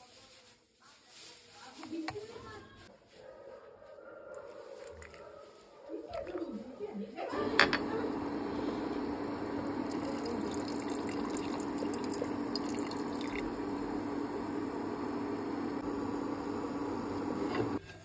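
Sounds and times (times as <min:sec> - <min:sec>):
curry bubbling in pot: 0:07.8 - 0:17.8
liquid pouring and splashing: 0:09.6 - 0:13.6.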